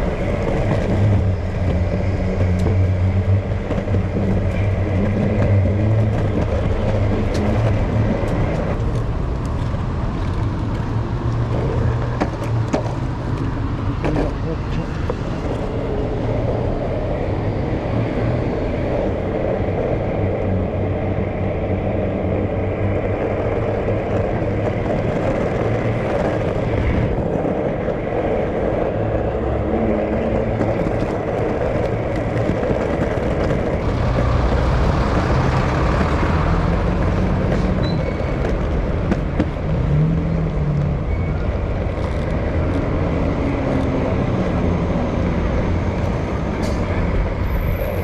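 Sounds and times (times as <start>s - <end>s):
road traffic rumble: 0.0s - 48.0s.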